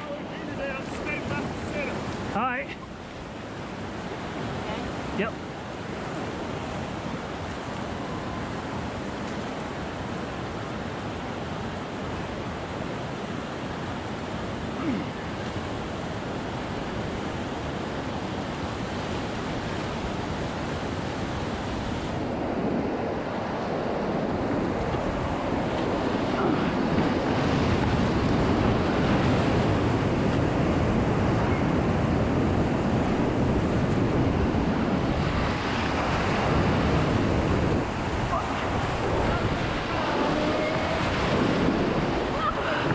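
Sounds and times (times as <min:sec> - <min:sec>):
rushing whitewater: 0:00.0 - 0:42.9
waves splashing over raft: 0:00.0 - 0:42.9
wind buffeting microphone: 0:15.6 - 0:42.9.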